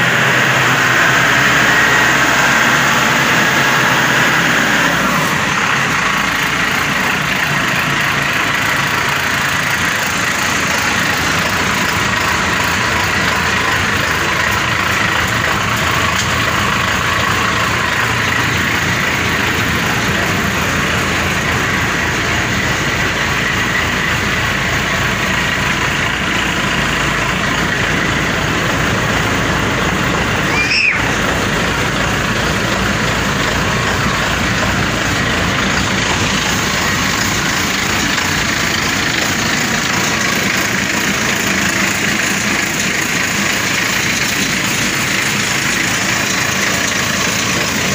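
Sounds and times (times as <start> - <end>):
combine harvester engine idling: 0.0 - 47.9.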